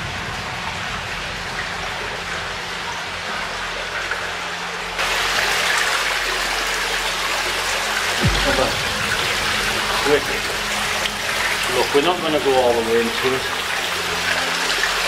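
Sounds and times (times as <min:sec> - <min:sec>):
stream water rushing: 0:01.8 - 0:15.0.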